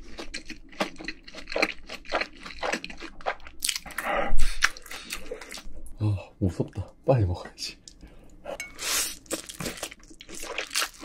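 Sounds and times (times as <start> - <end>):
person chewing crunchy food: 0.0 - 5.8, 8.8 - 11.0.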